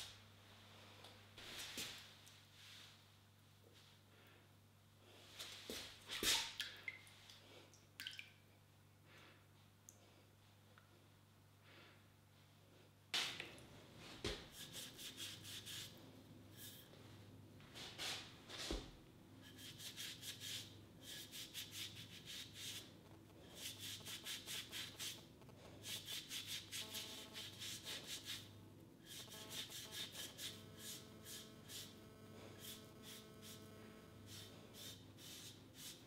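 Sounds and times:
sponge rubbing on ceramic: 0:14.5 - 0:16.0, 0:16.6 - 0:16.9, 0:19.4 - 0:36.0.

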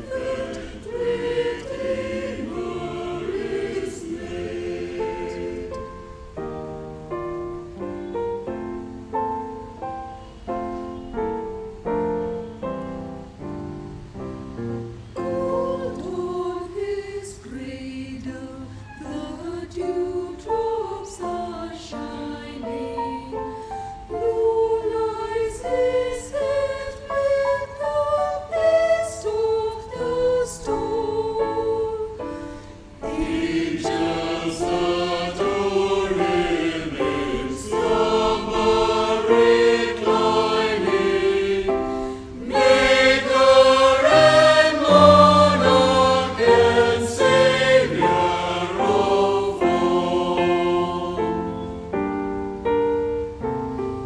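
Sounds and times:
mixed choir singing a hymn: 0:00.0 - 0:06.4, 0:15.2 - 0:51.9.

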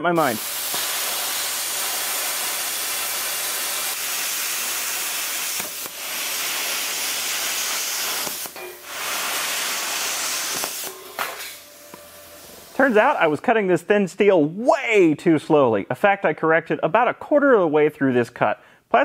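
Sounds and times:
plasma cutter hissing: 0:00.2 - 0:13.4.

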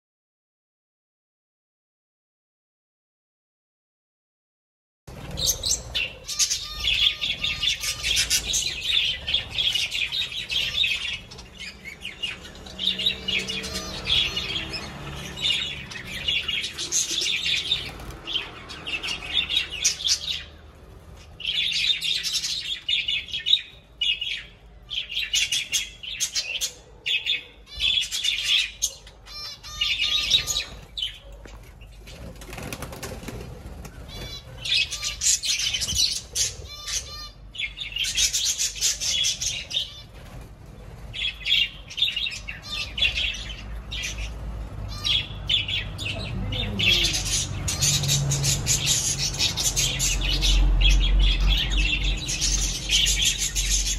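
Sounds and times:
budgerigars chattering: 0:05.3 - 0:20.5, 0:34.0 - 0:40.1, 0:41.2 - 0:53.9
wings flapping: 0:32.0 - 0:34.8.

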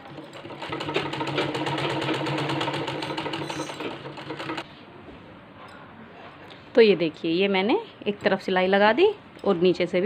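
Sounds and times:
sewing machine stitching: 0:00.0 - 0:04.6.

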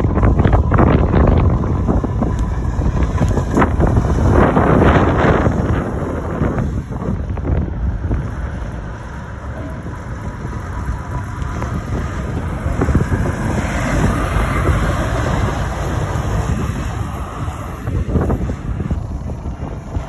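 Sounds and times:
wind buffeting microphone: 0:00.0 - 0:20.0
lorry driving past: 0:08.3 - 0:19.2.

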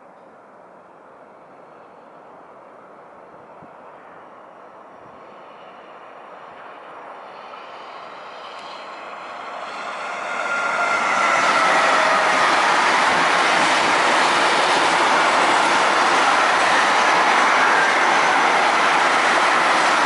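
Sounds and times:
electric locomotive hauling freight train: 0:00.6 - 0:20.0.

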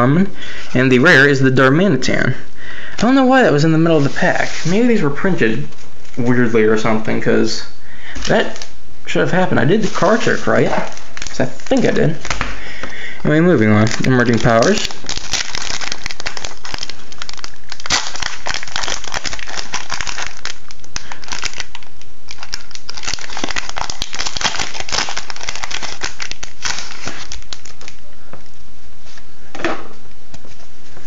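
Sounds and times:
foil wrapper crinkling: 0:09.8 - 0:12.6, 0:13.2 - 0:28.0.

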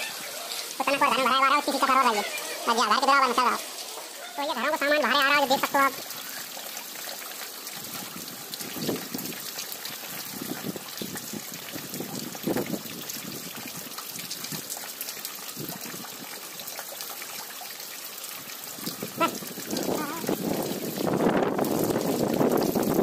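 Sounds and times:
floodwater rushing and trickling: 0:00.0 - 0:23.0.

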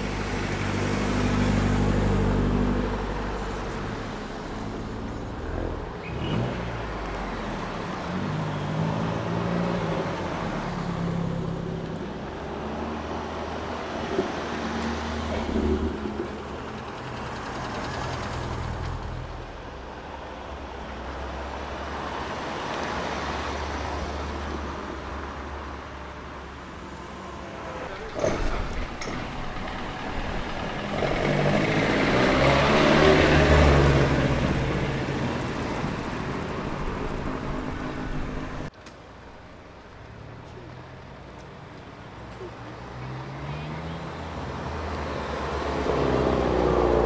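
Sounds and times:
car engines revving: 0:26.5 - 0:38.7, 0:41.9 - 0:47.0.

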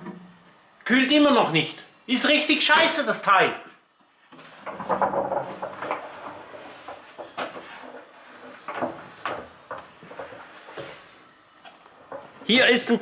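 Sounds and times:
knocks and clatter: 0:04.4 - 0:11.0, 0:12.0 - 0:12.5.

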